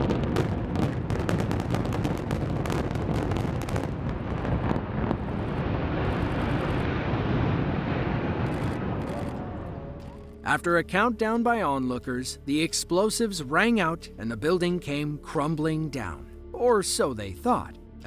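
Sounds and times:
building collapse rumble: 0.0s - 10.4s.

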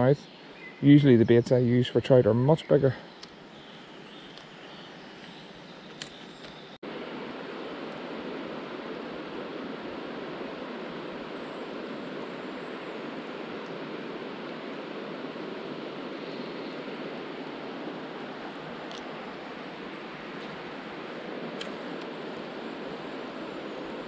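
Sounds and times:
river water rushing over shallows: 6.9s - 24.0s.

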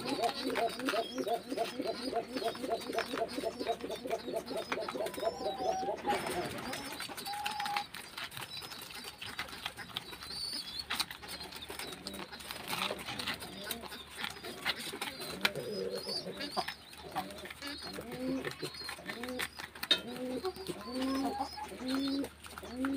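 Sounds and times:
guinea pig calls: 0.0s - 22.9s
guinea pigs chewing: 0.0s - 22.9s.

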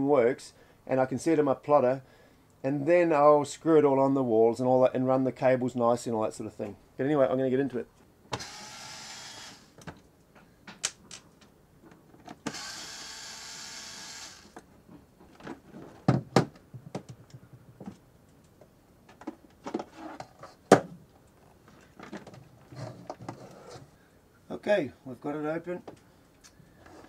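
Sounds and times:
electric screwdriver whirring: 8.4s - 9.8s, 12.5s - 14.6s.

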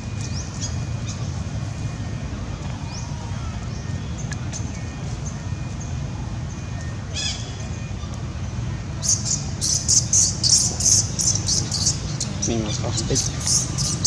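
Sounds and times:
high scratchy chirping calls: 9.0s - 14.0s.

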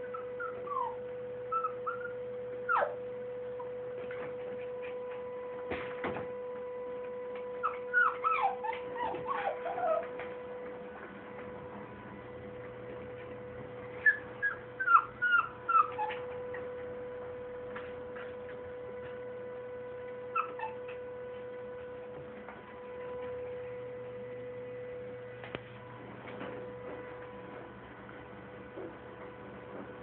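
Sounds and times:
puppy whimpering: 0.0s - 3.8s, 7.4s - 10.3s, 13.9s - 16.8s, 20.2s - 21.1s
electrical hum: 0.0s - 30.0s.

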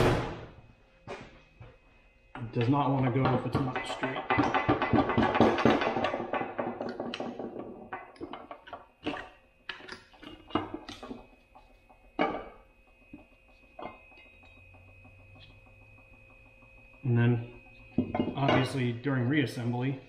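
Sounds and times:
sharp metal knocks and clicks: 2.4s - 11.3s.

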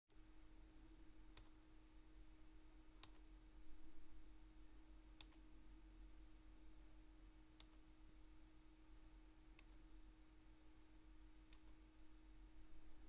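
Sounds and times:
steady low hum: 0.1s - 13.0s
faint sharp clicks: 7.6s - 7.8s.

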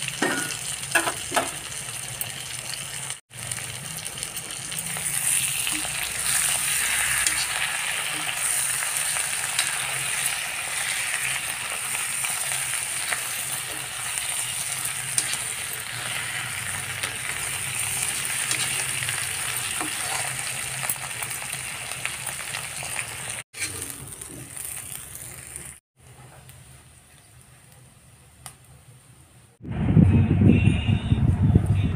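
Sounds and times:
vegetables sizzling in oil: 0.0s - 28.0s
metal spatula scraping pan: 5.2s - 11.4s, 12.3s - 21.0s, 23.6s - 23.9s.

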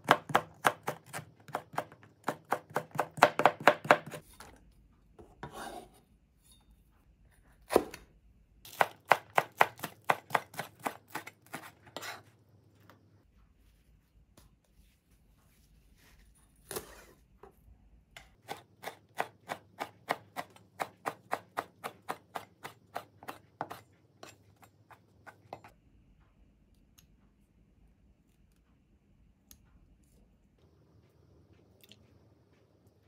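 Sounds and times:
knife chopping on cutting board: 0.0s - 4.2s, 7.6s - 8.0s, 8.7s - 12.3s, 18.4s - 25.7s.

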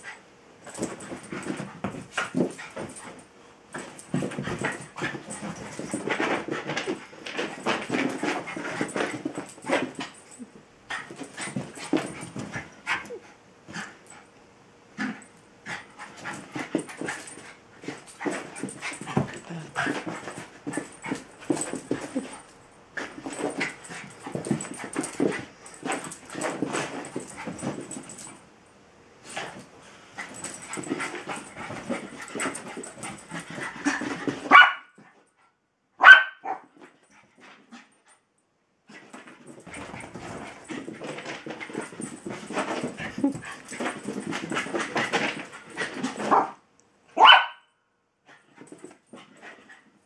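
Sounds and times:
dog barks: 34.5s - 34.9s, 36.0s - 36.7s, 47.2s - 47.7s.

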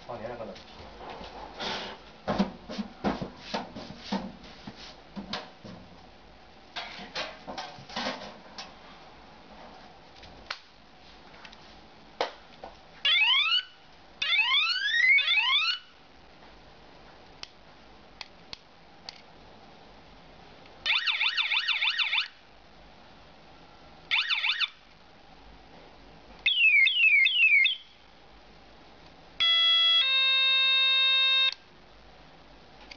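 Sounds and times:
electronic bicycle horn whoops: 29.4s - 31.6s.

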